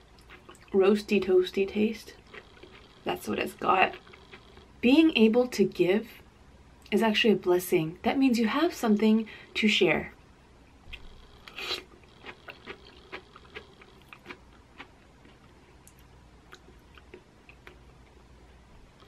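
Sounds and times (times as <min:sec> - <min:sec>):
person slurping and chewing: 0:02.2 - 0:03.2, 0:11.4 - 0:15.4.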